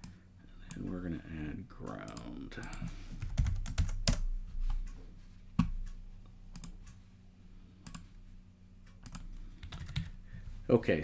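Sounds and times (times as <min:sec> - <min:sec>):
computer keyboard typing: 0:01.9 - 0:04.3, 0:06.5 - 0:06.9, 0:07.8 - 0:08.1, 0:08.9 - 0:10.2.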